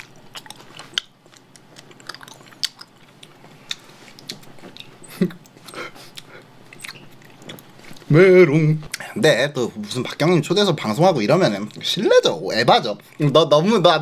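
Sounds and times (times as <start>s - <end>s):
chewing wet clicks and smacks: 0.0s - 8.1s.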